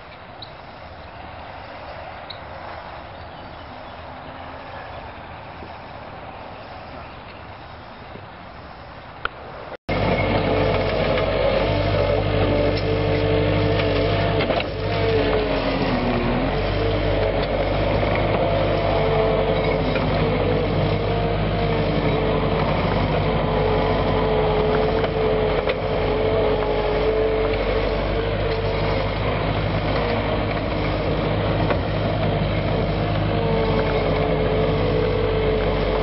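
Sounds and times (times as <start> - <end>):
diesel engine running: 9.9 - 36.0
gravel spreading: 9.9 - 36.0.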